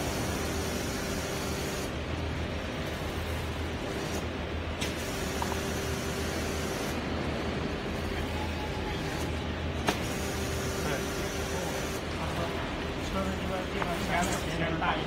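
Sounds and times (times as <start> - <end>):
hydraulic press hum and hiss: 0.0 - 2.0, 2.8 - 7.1, 9.0 - 12.2.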